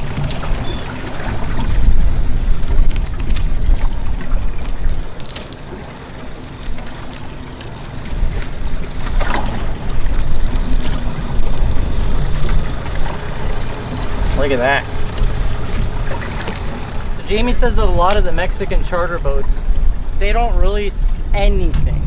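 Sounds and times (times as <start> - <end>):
boat engine rumble: 0.0 - 22.0.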